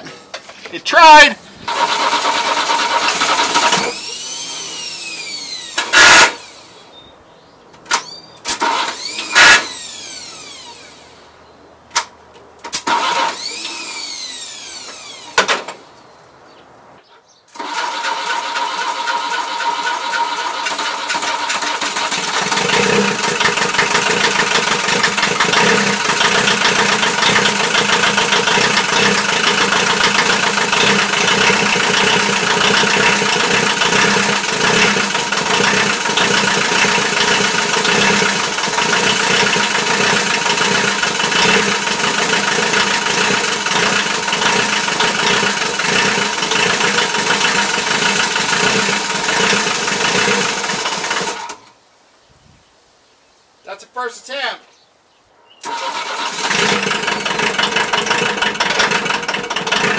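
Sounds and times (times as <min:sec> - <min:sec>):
diesel engine running: 0:01.6 - 0:06.8, 0:17.6 - 0:51.5, 0:55.6 - 0:59.9
starter motor whirring: 0:01.7 - 0:06.7, 0:08.5 - 0:11.1, 0:12.8 - 0:15.5, 0:17.5 - 0:51.6, 0:55.6 - 0:59.9.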